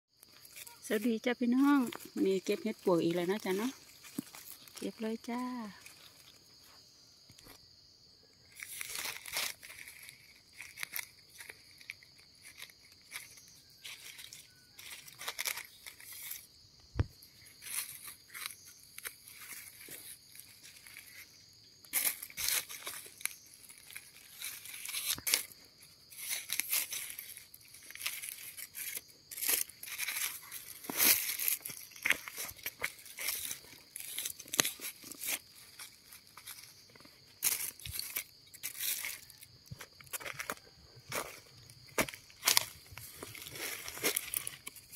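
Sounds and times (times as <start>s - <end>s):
dry leaves crackling and rustling: 8.5s - 16.5s, 17.4s - 39.4s, 41.8s - 44.9s
knife scraping the ground: 8.5s - 44.9s.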